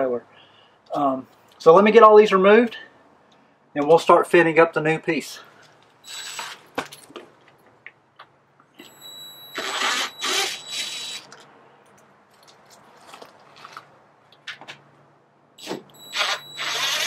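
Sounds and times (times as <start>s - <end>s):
cordless drill whirring: 6.1s - 6.6s, 9.5s - 11.3s, 15.6s - 17.0s.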